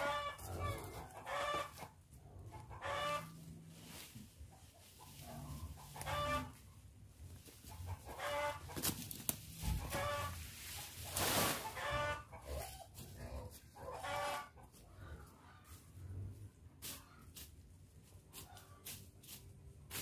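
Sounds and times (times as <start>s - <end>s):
chicken calling: 7.8s - 8.9s, 11.6s - 15.8s
rustling: 8.6s - 11.8s.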